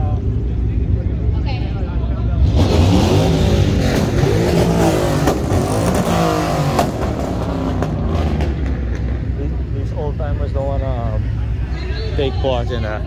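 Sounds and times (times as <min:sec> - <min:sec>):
car engine revving: 0:02.2 - 0:11.6.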